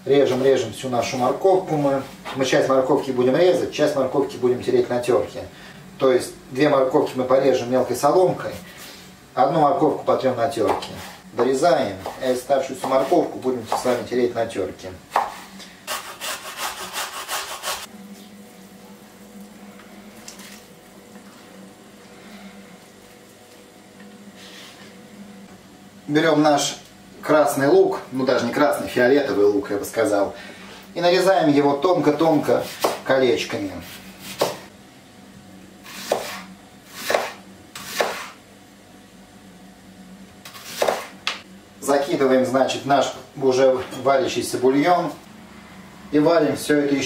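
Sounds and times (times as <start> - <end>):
steady low hum: 0.0 - 47.0
knife slicing onion on board: 10.6 - 14.0, 15.1 - 17.9, 32.6 - 33.0, 33.8 - 34.7, 35.8 - 38.4, 40.4 - 41.4
carrot rasping on metal grater: 15.9 - 17.9.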